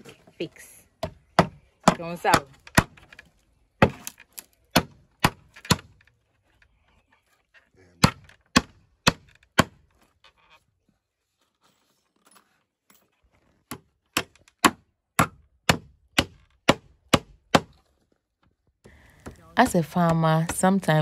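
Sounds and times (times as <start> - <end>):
hammer hitting nail into wood: 4.7 - 5.9, 8.0 - 9.8, 13.7 - 17.8.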